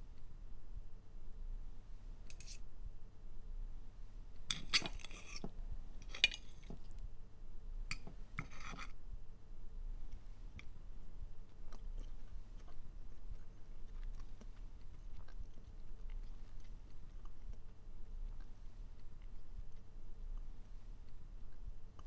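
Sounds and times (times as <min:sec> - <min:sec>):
knife and fork scraping on plate: 0:02.3 - 0:02.6, 0:04.5 - 0:06.7, 0:08.4 - 0:09.0.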